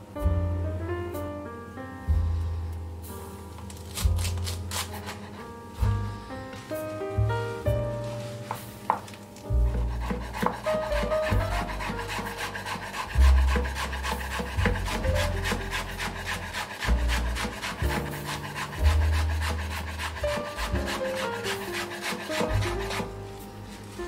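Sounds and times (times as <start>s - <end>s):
background music with bass: 0.0s - 21.5s
knife chopping on wooden board: 3.8s - 5.4s, 8.5s - 23.2s.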